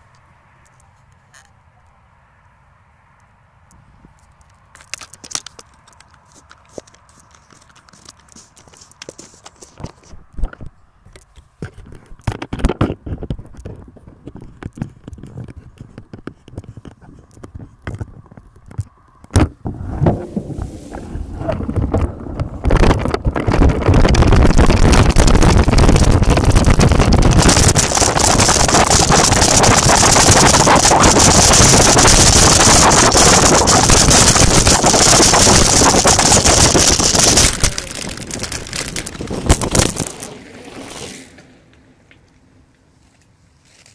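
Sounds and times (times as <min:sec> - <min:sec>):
wind buffeting microphone: 0:19.4 - 0:40.3
bike tyres rattling on ground: 0:19.6 - 0:41.6.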